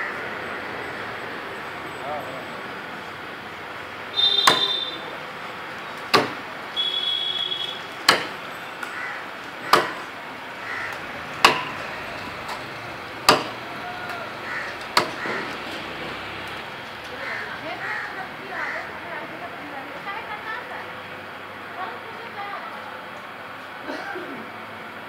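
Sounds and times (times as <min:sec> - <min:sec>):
chopping blows into palm trunk: 0:04.4 - 0:04.7, 0:06.1 - 0:06.4, 0:08.1 - 0:08.4, 0:13.3 - 0:13.6.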